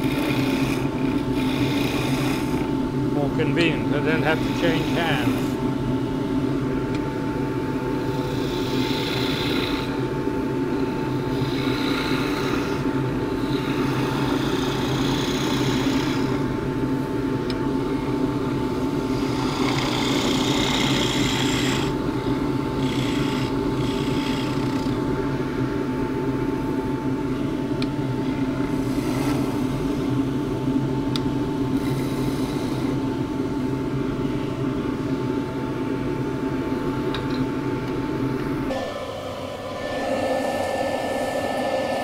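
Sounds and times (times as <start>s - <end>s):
wood lathe humming: 0.0s - 5.6s, 8.0s - 10.0s, 10.8s - 16.5s, 19.1s - 22.0s, 22.7s - 25.0s, 38.6s - 42.0s
chisel cutting spinning wood: 19.2s - 21.9s, 38.7s - 42.0s.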